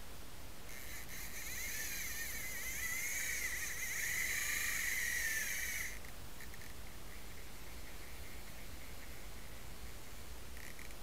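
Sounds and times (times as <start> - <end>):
fishing reel drag buzzing: 0.7 - 9.3.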